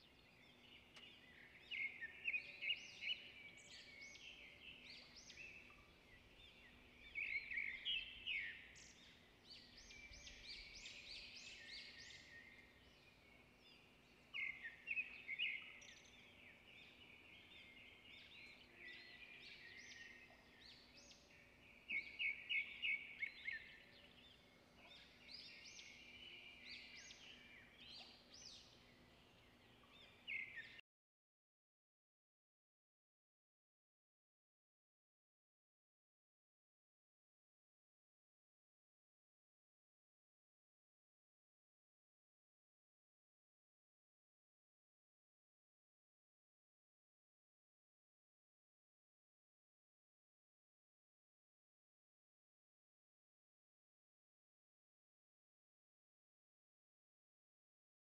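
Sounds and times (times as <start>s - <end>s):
small birds chirping: 0.0s - 30.8s.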